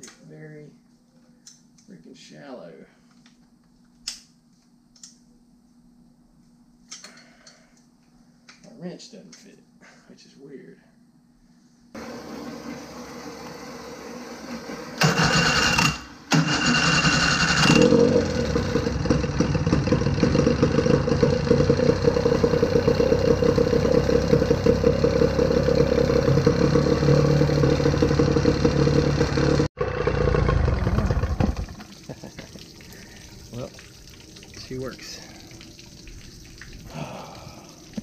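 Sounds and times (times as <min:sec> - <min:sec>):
outboard motor cranking: 0:14.6 - 0:31.9
outboard motor running: 0:17.4 - 0:31.8.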